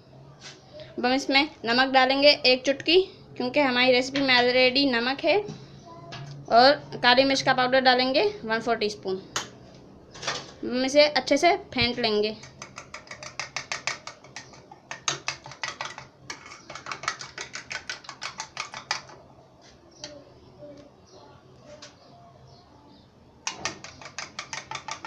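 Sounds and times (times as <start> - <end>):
spoon beating egg in bowl: 12.4 - 19.1, 23.5 - 25.0.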